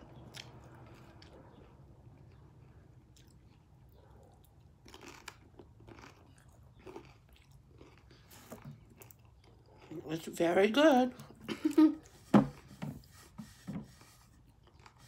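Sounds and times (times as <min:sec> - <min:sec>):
crunchy food being chewed: 0:00.0 - 0:10.4, 0:14.3 - 0:15.0.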